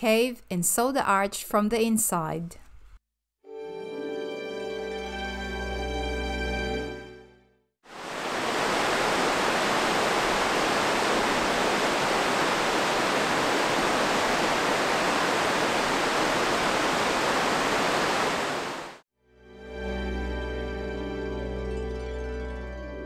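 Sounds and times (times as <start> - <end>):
river water rushing over rocks: 7.9 - 19.0.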